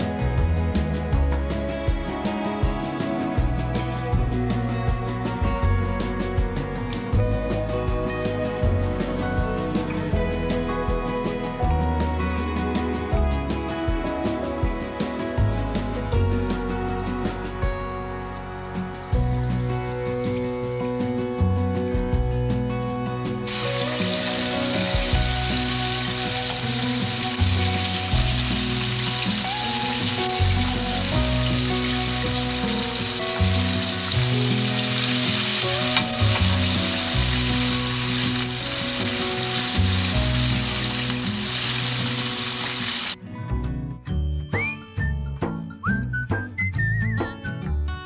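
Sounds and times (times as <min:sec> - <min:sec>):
background music: 0:00.0 - 0:48.0
food deep-frying in oil: 0:23.5 - 0:43.2.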